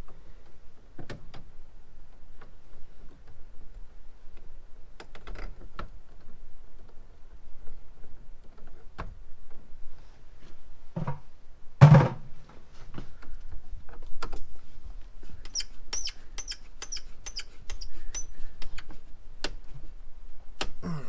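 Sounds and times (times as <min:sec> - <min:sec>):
knock: 0:11.8 - 0:12.2
short high-pitched squeaks: 0:15.4 - 0:18.3
screwdriver clicks: 0:15.5 - 0:18.3.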